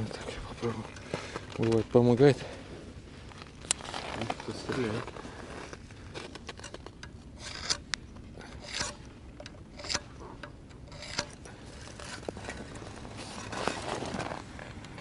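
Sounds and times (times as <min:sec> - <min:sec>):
ice auger blades scraping ice: 0:07.4 - 0:07.8, 0:10.8 - 0:14.8.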